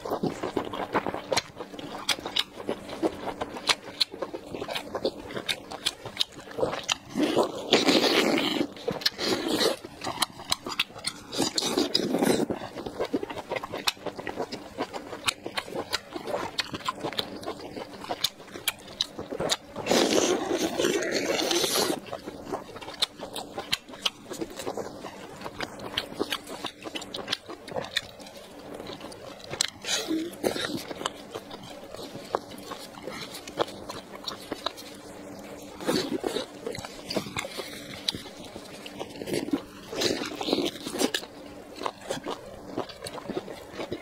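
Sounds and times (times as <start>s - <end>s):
wet chewing and biting: 0.0s - 44.0s.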